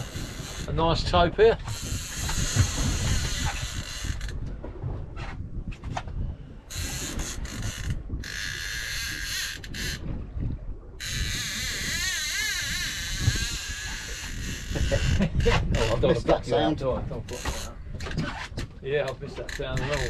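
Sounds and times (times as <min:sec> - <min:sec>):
fishing reel ratcheting: 0:01.7 - 0:04.4, 0:06.7 - 0:10.0, 0:11.0 - 0:15.2.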